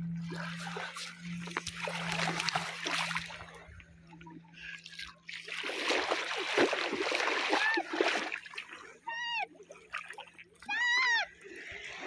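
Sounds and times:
seawater splashing at shore: 0.2 - 10.8.

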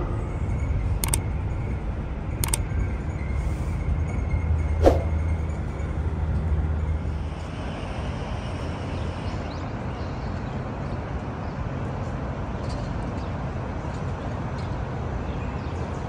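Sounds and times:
steady rushing noise: 0.0 - 8.5
hum: 0.0 - 9.1
low vehicle rumble: 0.0 - 9.4.

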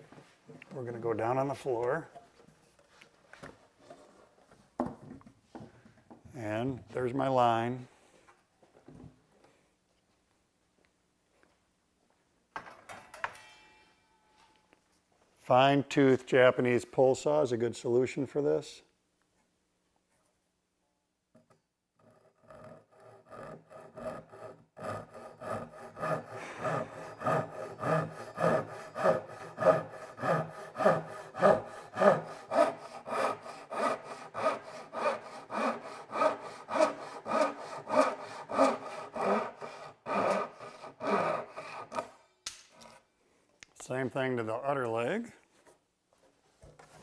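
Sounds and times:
pull saw cutting wood: 22.0 - 42.2.

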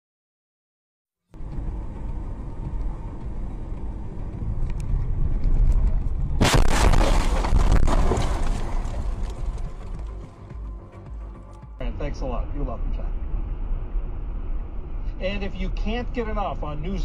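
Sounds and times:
vehicle road rumble: 1.3 - 17.0
loud car crash: 6.4 - 10.2.

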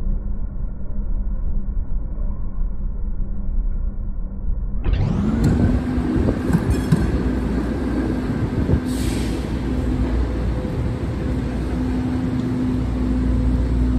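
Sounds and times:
streetcar rolling: 5.0 - 13.9
traffic rumble: 5.0 - 13.9
hiss of air: 8.7 - 10.2.

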